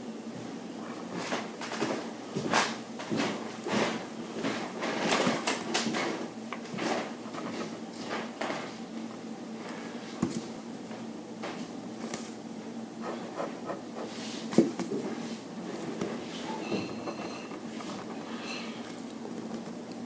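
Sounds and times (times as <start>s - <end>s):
pen scratching on paper: 13.0s - 14.2s, 16.3s - 18.6s
hand rustling over paper: 15.8s - 18.4s.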